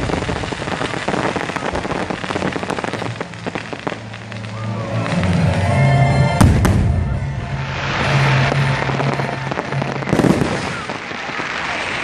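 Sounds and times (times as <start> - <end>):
fireworks bangs: 0.0 - 12.0
fireworks crackling: 0.0 - 12.0
music playing: 4.0 - 10.7.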